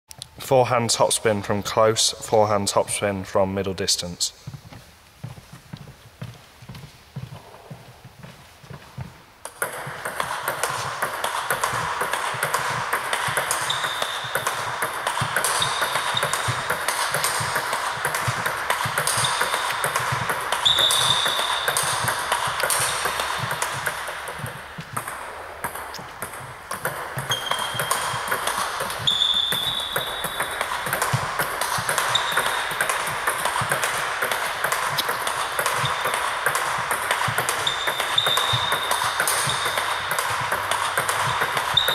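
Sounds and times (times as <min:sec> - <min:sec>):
balls bouncing on table: 0:08.7 - 0:41.9
bats hitting table tennis balls: 0:09.4 - 0:41.9
short high-pitched squeaks: 0:20.6 - 0:21.7, 0:28.9 - 0:30.5, 0:37.6 - 0:40.0.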